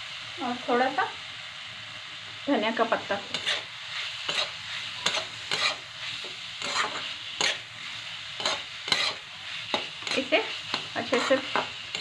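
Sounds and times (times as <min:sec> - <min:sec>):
food frying hiss: 0:00.0 - 0:12.0
spatula scraping metal pan: 0:03.3 - 0:12.0.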